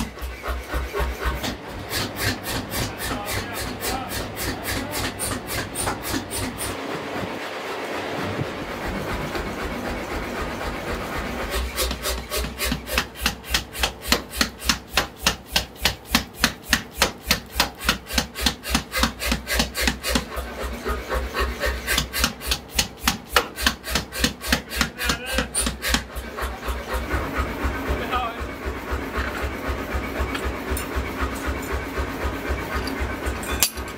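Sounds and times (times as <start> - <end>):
coal forge rushing: 0.0 - 33.9
power hammer striking steel: 11.5 - 26.2, 32.8 - 33.9.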